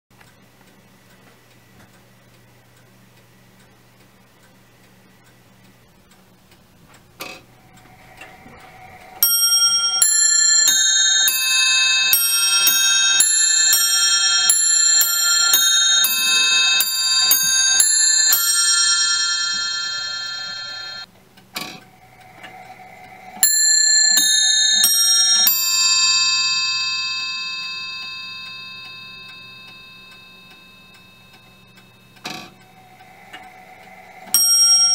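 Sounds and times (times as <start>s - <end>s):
clock ticking: 0.2s - 34.9s
clock mechanism click: 5.2s - 20.6s, 21.4s - 34.9s
bells ringing: 8.2s - 21.1s, 22.3s - 34.9s.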